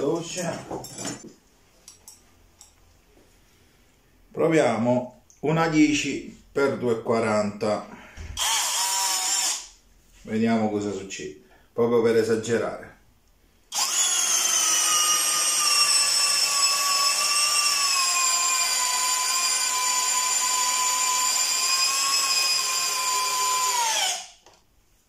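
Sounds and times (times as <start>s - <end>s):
drill driving screw into wood: 8.2s - 9.8s, 13.7s - 24.5s.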